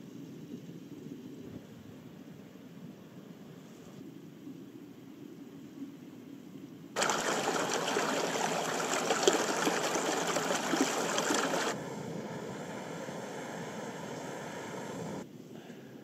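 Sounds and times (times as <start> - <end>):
river rushing over boulders: 7.0 - 11.8.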